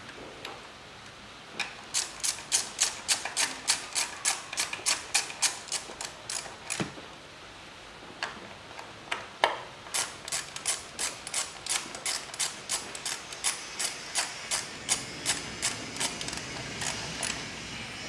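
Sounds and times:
ratchet wrench clicking: 1.9 - 6.8, 9.9 - 17.5.

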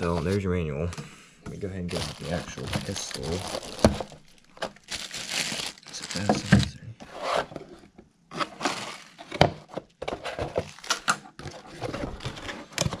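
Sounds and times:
plastic bag rustling: 1.8 - 6.8, 8.4 - 9.4, 10.4 - 13.0
cardboard scraping: 1.9 - 4.2, 6.2 - 13.0.

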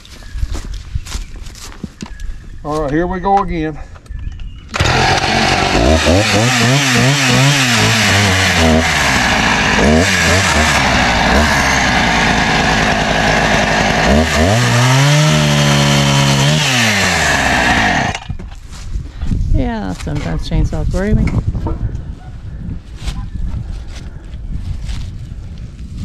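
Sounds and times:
chainsaw cutting wood: 4.7 - 18.4.

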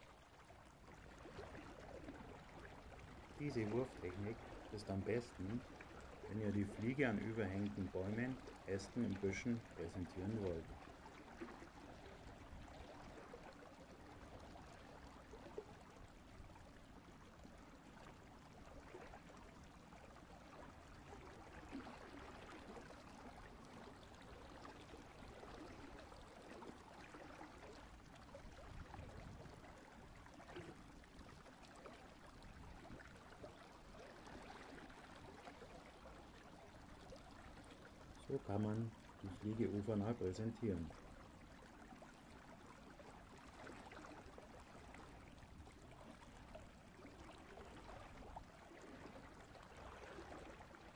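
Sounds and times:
faint stream running: 0.0 - 50.9.

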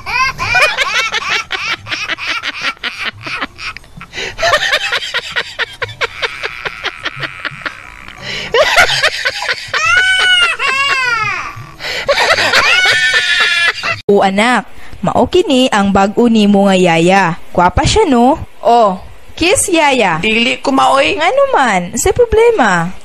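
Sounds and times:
person laughing: 0.0 - 14.0.

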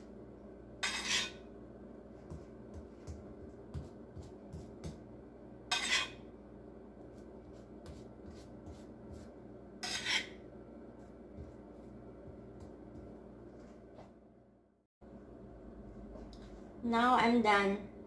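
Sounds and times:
metal spatula scraping: 0.8 - 1.5, 5.7 - 6.2, 7.9 - 10.4
soft smearing strokes: 7.0 - 10.0, 10.9 - 12.0.

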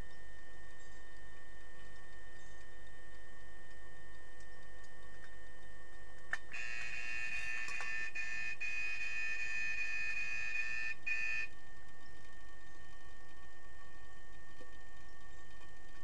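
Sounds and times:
underwater buzzer high tone: 6.5 - 11.6.

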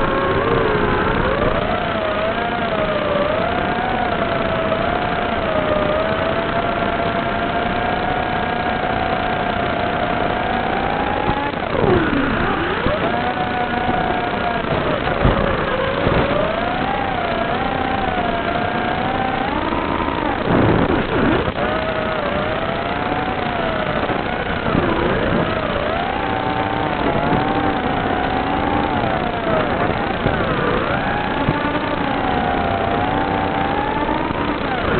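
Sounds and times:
drone motors whining: 0.0 - 34.9.

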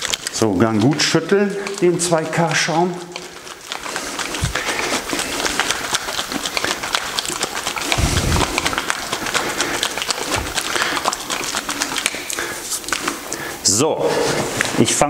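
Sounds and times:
dull low thump: 8.0 - 8.7.

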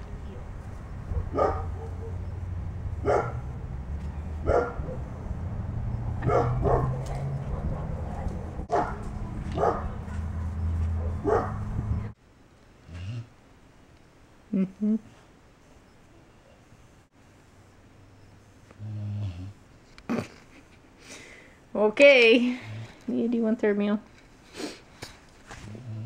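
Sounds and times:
low rumble: 0.0 - 12.2
dog barking: 1.1 - 2.3, 3.0 - 3.8, 4.4 - 5.1, 6.2 - 11.7.

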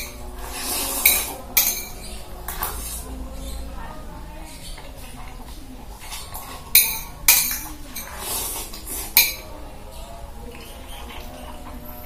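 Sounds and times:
scraping and eating noises: 0.0 - 12.0
metal spoon clinking on plate: 0.9 - 2.7, 6.7 - 8.2, 9.2 - 9.6.

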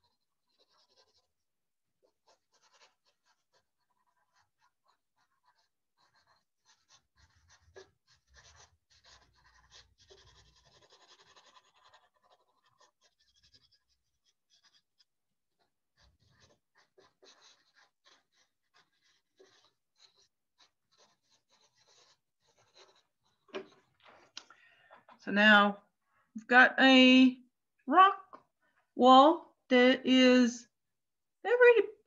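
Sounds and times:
pencil scratching on paper: 0.0 - 24.3.

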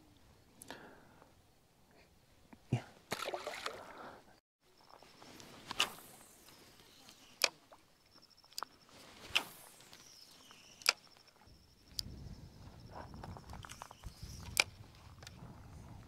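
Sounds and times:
low rustle of movement: 8.8 - 16.0.

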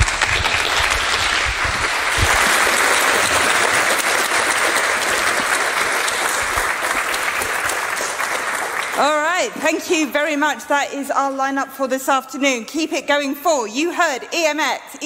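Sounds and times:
audience applauding: 0.0 - 10.1.

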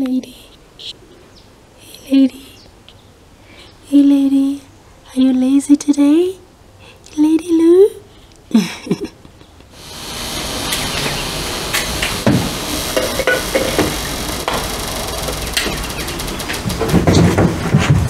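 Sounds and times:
steady rushing noise: 9.8 - 18.0
sharp clicks and knocks: 10.7 - 18.0.

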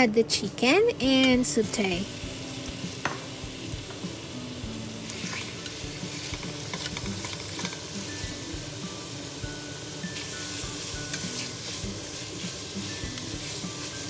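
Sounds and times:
chicken sizzling in oil: 1.5 - 14.0.

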